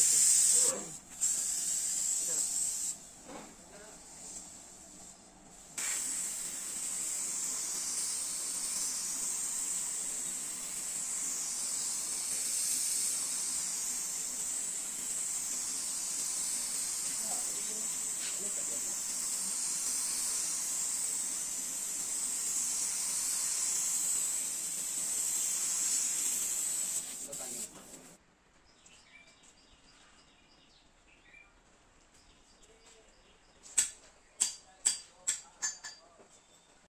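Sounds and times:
spray gun hissing: 0.0s - 28.2s
faint birds chirping: 28.4s - 34.4s.

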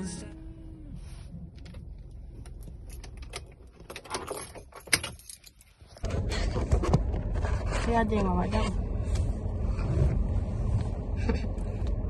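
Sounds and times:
clicks and rattles of car controls: 1.5s - 5.6s
steady low rumble: 6.0s - 12.0s.

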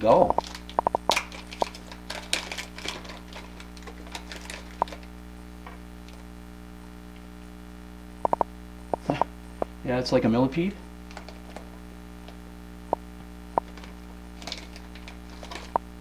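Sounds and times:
steady electrical hum: 0.0s - 16.0s
plastic packages clicking and rustling: 0.4s - 5.1s, 11.1s - 11.7s, 13.7s - 15.8s.

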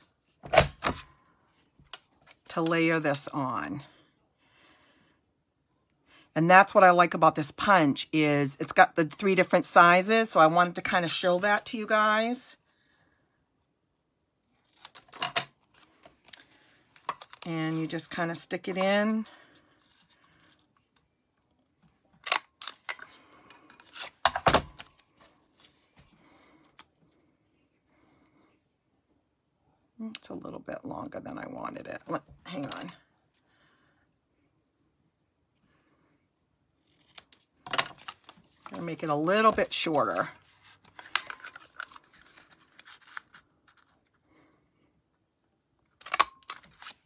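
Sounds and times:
paper rustling: 38.0s - 44.0s.

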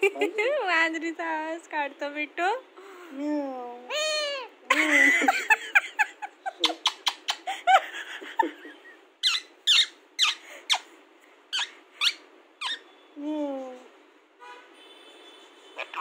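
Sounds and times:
parakeet squeaking: 6.6s - 7.5s, 9.2s - 10.9s, 11.5s - 13.0s.

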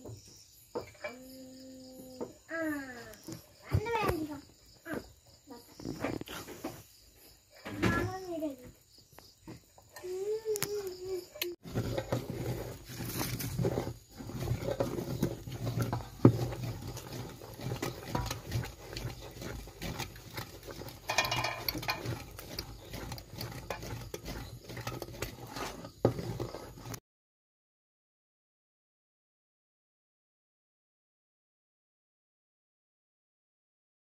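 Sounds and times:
syrup bubbling in a pot: 9.0s - 27.0s.

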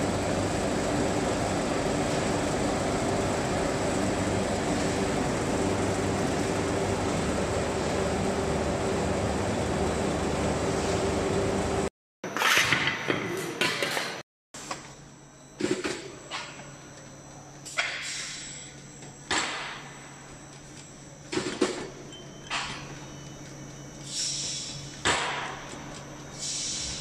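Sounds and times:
machine motor hum: 0.0s - 11.9s.

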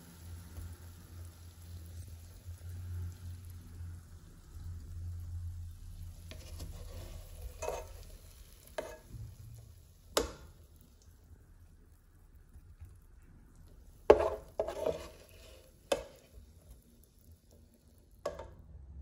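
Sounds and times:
low steady hum: 0.0s - 19.0s
meatballs sizzling in oil: 0.0s - 19.0s
spoon scraping and knocking pan: 6.2s - 9.4s, 10.2s - 10.4s, 14.1s - 16.5s, 18.2s - 18.5s.

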